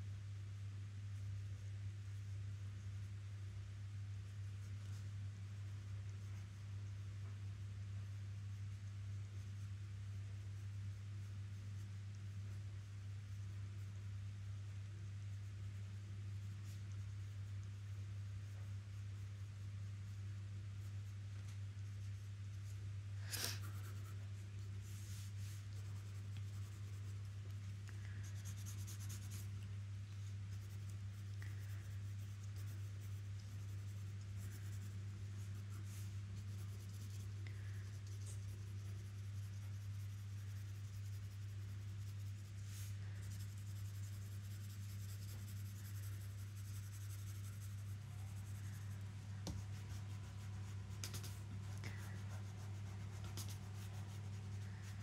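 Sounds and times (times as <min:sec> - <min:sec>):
steady low hum: 0:00.0 - 0:55.0
pencil scratching on paper: 0:28.1 - 0:29.6, 0:30.2 - 0:55.0.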